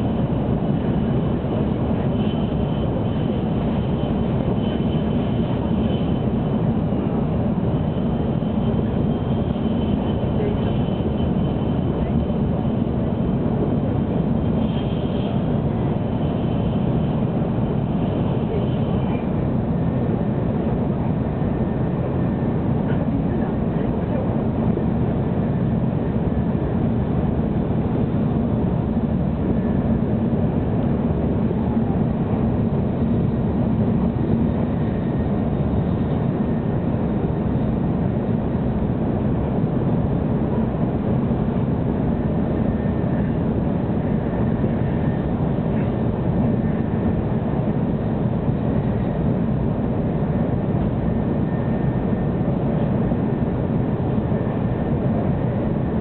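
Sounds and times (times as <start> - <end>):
train cabin low rumble: 0.0 - 56.0.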